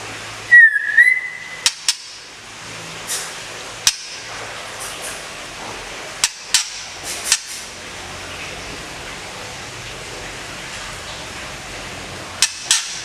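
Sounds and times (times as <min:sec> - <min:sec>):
bird sharp call notes: 0:00.5 - 0:02.1.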